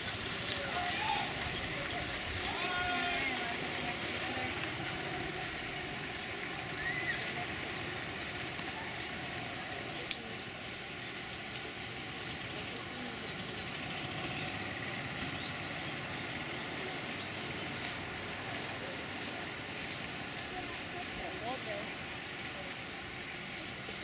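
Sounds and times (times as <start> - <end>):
outdoor background hiss: 0.0 - 24.0.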